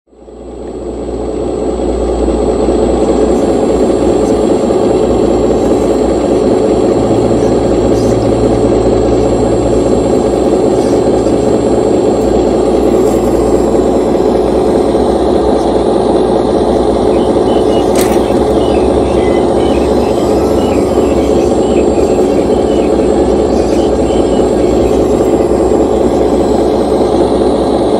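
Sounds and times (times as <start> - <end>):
excavator mechanical drone: 0.1 - 27.9
low hum: 0.1 - 27.9.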